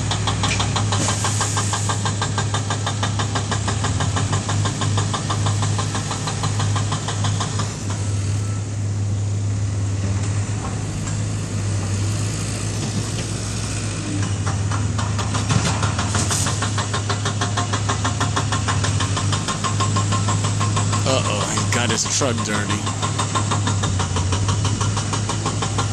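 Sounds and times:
bulldozer diesel engine: 0:00.0 - 0:25.9
rapid clatter: 0:14.4 - 0:25.9.

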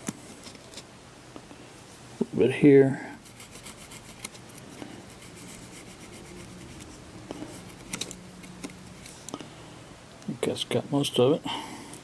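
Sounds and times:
cotton swab scratchy rubbing: 0:03.2 - 0:08.0.

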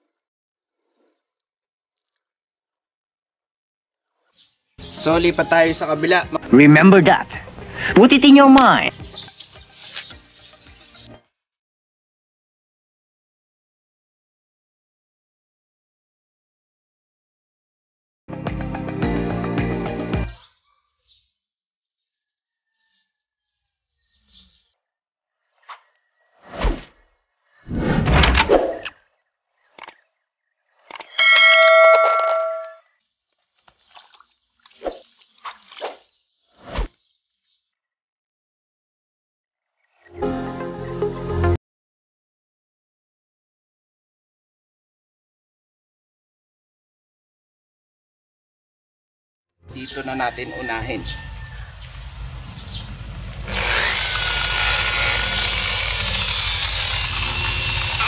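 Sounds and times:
short swish: 0:27.7 - 0:28.8
bright bell ding: 0:31.2 - 0:32.8
electric polisher whining: 0:53.4 - 0:58.0.

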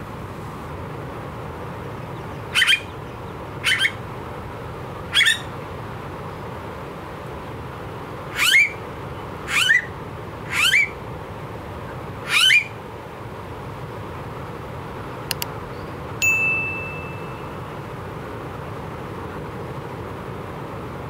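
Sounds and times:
bird whistled calls: 0:02.5 - 0:03.0, 0:03.6 - 0:04.0, 0:08.4 - 0:08.8, 0:10.5 - 0:11.0, 0:12.3 - 0:12.8
quick clicks: 0:15.3 - 0:15.6
bell-like ding: 0:16.2 - 0:17.9.

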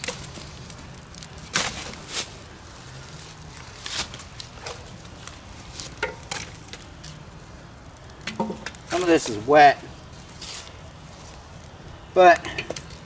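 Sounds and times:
rustling: 0:00.0 - 0:13.0
wood snapping and knocking: 0:04.0 - 0:07.2, 0:08.2 - 0:09.3, 0:12.4 - 0:13.0.

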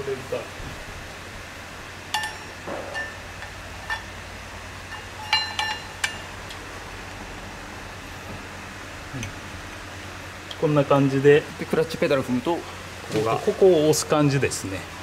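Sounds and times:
metal clutch parts clinking: 0:04.9 - 0:06.3.

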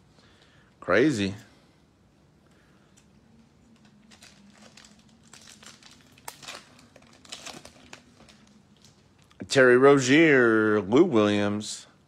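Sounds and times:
foil wrapper crinkling: 0:03.7 - 0:09.4.

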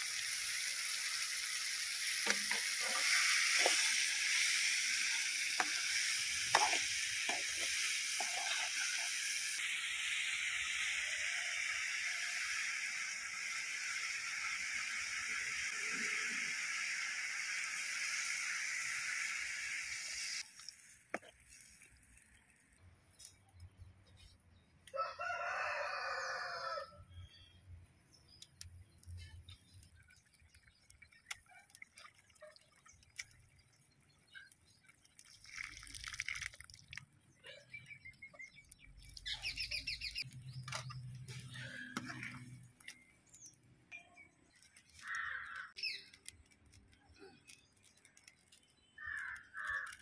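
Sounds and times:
vegetables sizzling in a pan: 0:00.0 - 0:21.5
rooster crowing: 0:24.9 - 0:27.0.

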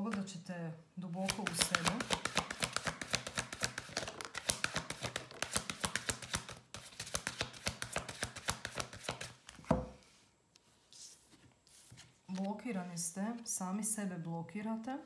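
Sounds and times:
cards being shuffled: 0:01.2 - 0:09.8.

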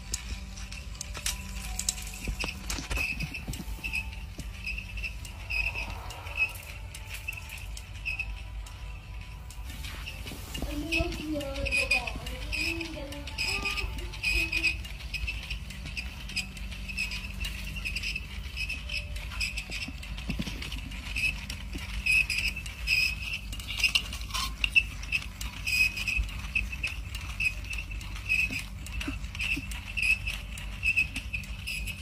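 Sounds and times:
low motor hum: 0:00.0 - 0:23.8
toy robot chirping squeak: 0:01.3 - 0:08.5, 0:09.8 - 0:32.0.

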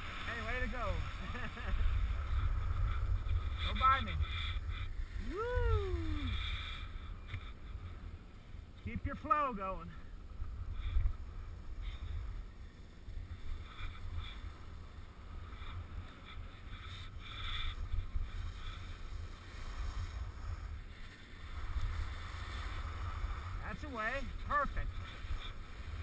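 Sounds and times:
wind buffeting microphone: 0:00.0 - 0:08.0
skis scraping snow: 0:00.0 - 0:26.0.

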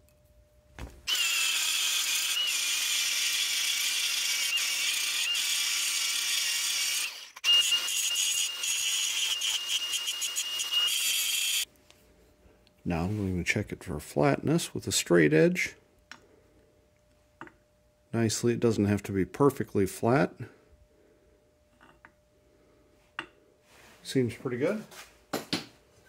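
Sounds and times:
angle grinder grinding metal: 0:01.1 - 0:11.7.

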